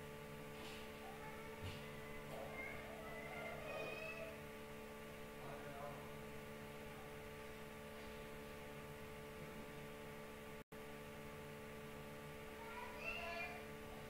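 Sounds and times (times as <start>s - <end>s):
electrical hum with hiss: 0.0s - 14.0s.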